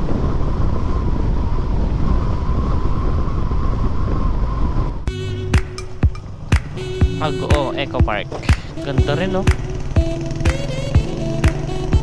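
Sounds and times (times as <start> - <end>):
wind rushing over microphone: 0.0 - 8.9.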